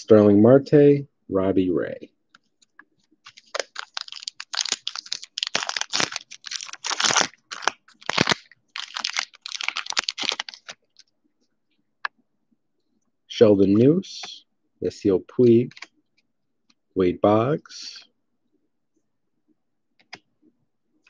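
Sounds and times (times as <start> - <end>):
foil pack tearing and crinkling: 3.3 - 10.8.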